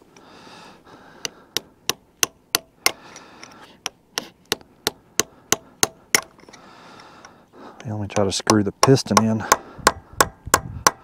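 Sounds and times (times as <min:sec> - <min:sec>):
hammer striking a chisel: 0:01.6 - 0:03.0, 0:04.5 - 0:06.3, 0:08.1 - 0:11.0.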